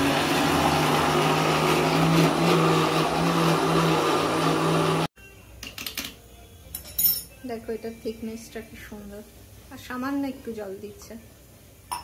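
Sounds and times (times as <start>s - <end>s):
mixer grinder running: 0.0s - 5.1s.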